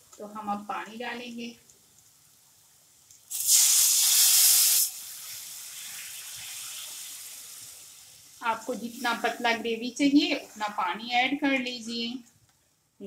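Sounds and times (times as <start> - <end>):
water hissing in hot pan: 3.2 - 10.4.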